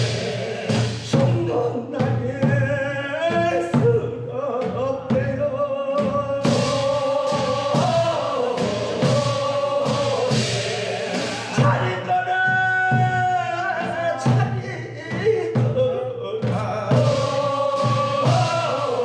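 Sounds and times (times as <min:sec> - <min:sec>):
regular percussive strikes: 0:00.0 - 0:02.6, 0:06.0 - 0:15.8, 0:16.4 - 0:19.0
men's chorus singing slow notes: 0:00.0 - 0:19.0.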